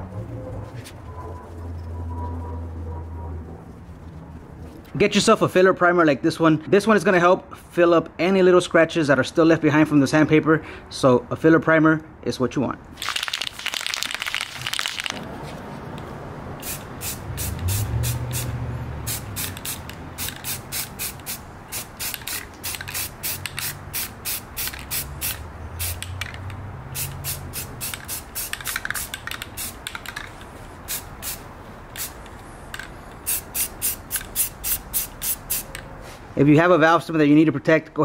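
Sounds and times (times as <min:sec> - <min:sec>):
aerosol can shaking: 0:13.0 - 0:15.3, 0:19.1 - 0:26.4, 0:27.0 - 0:31.4
spray paint bursts: 0:16.6 - 0:35.8.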